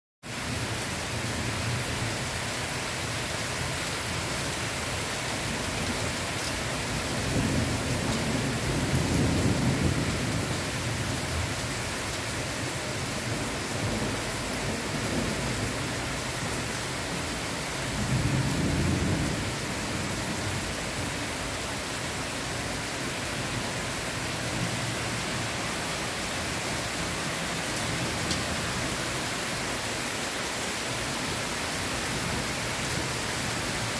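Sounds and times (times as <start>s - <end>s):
heavy rain on leaves and pavement: 0.2s - 33.9s
thunder rumbling: 7.2s - 10.9s.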